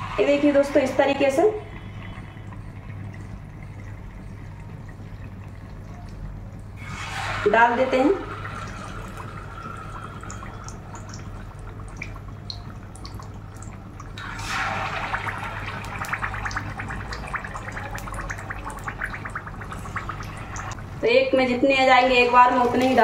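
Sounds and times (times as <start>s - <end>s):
food sizzling in hot oil: 14.2s - 17.3s.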